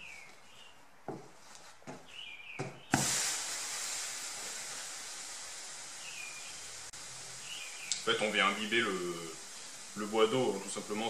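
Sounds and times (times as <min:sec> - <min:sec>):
steam hissing from hot iron: 0:02.9 - 0:11.0.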